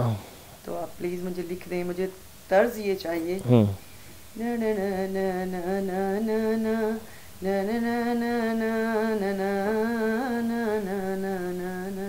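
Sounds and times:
woman humming a melody: 0:03.1 - 0:03.7, 0:04.4 - 0:12.0.

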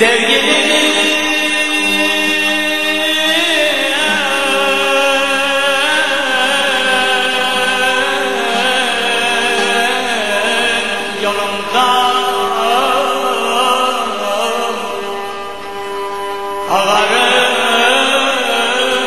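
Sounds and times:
held drone: 0:00.0 - 0:19.0
ornamented wavering melody: 0:00.0 - 0:19.0.

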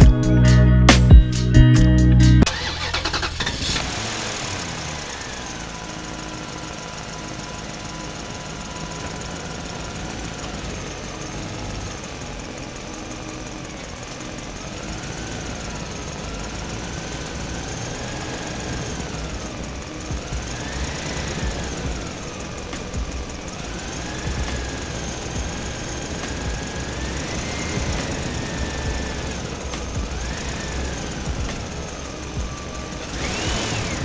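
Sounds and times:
toy truck engine sound: 0:02.4 - 0:34.0
faint wavering whine: 0:05.0 - 0:34.0.

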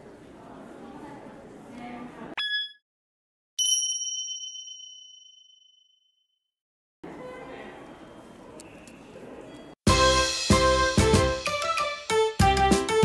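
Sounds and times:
ringing bell-like ding: 0:02.4 - 0:02.8, 0:03.6 - 0:06.2.

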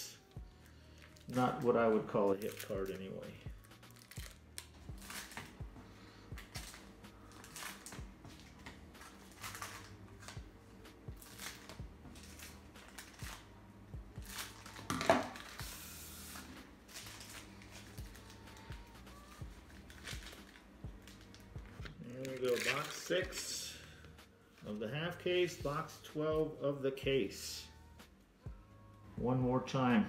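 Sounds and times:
cards sliding and rustling: 0:14.4 - 0:18.6.

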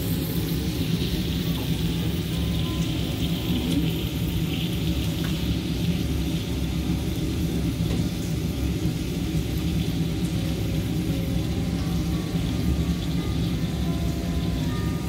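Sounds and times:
meat sizzling on a griddle: 0:00.0 - 0:15.0.

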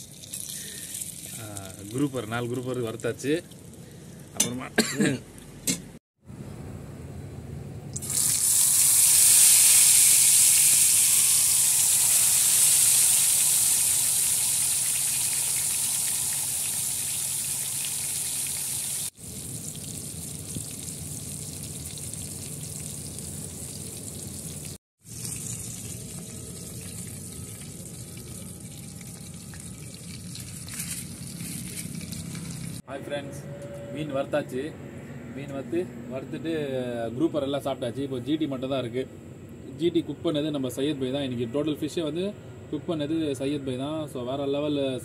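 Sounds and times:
fish sizzling on hot pan: 0:08.0 - 0:26.8.

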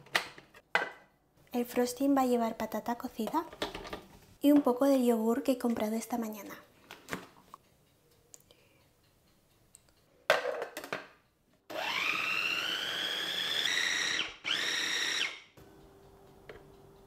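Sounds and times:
food processor whining: 0:11.7 - 0:15.6.

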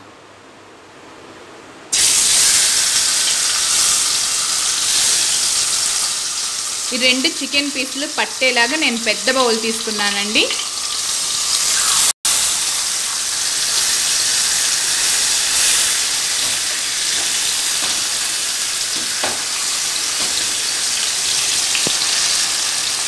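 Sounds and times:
chicken sizzling in hot oil: 0:01.9 - 0:23.0
metal tongs tapping pan: 0:16.3 - 0:20.8.

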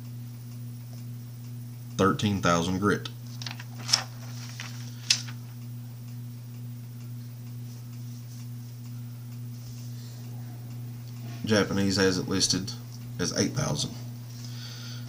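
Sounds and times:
steady low hum: 0:00.0 - 0:15.0
paper clicks and rustles: 0:03.2 - 0:05.5.

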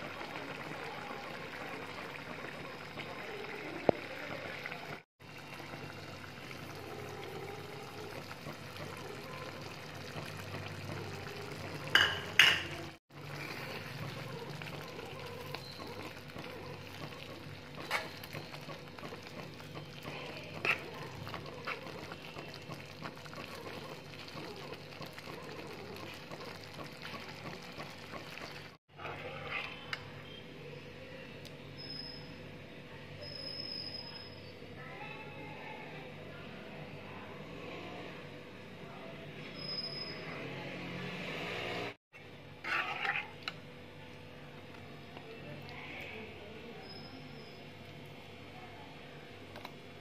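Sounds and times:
curry bubbling and sizzling in pan: 0:00.0 - 0:30.4, 0:42.6 - 0:43.7
spoon knocking against pan: 0:11.9 - 0:12.8.

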